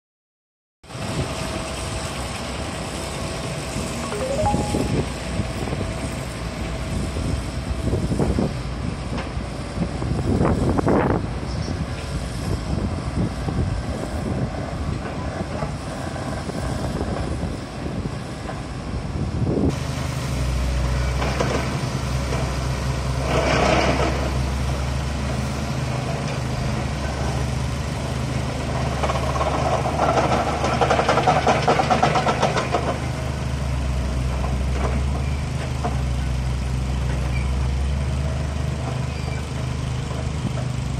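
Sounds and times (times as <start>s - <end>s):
excavators pile driving: 6.4s - 40.9s.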